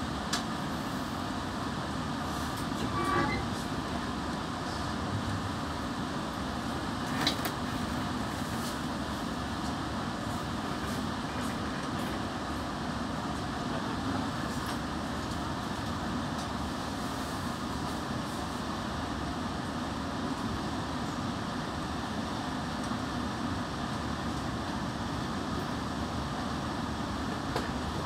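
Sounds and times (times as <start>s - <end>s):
train running noise: 0.0s - 28.0s.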